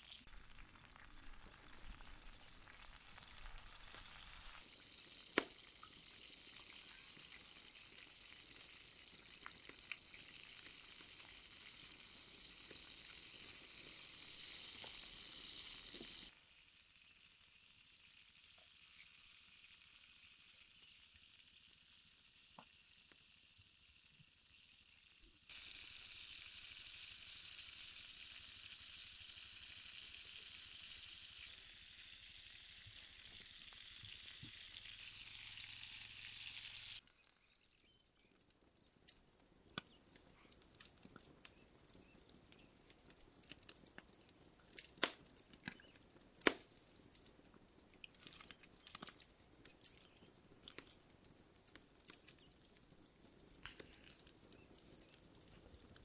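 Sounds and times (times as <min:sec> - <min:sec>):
food sizzling in a skillet: 0:00.0 - 0:38.3, 0:48.0 - 0:56.0
sharp clicks and crackles: 0:00.1 - 0:16.3, 0:37.0 - 0:56.0.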